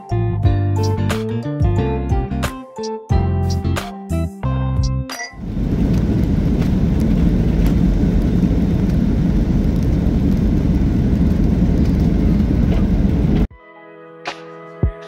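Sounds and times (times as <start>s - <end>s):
jet engines and runway rumble: 5.4s - 13.5s.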